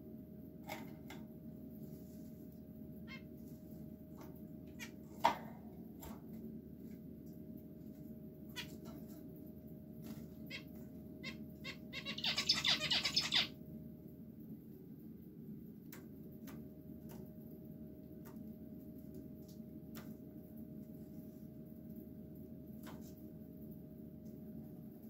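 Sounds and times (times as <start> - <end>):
finches calling: 10.5 - 13.5.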